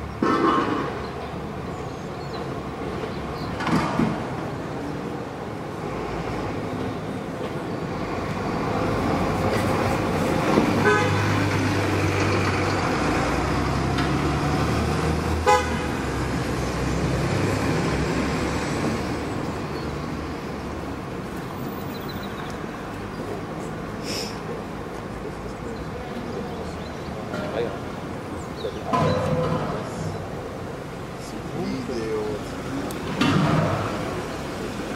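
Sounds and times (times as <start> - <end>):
road traffic rumble: 0.0 - 34.9
car horn toots: 10.8 - 11.3, 15.4 - 16.0.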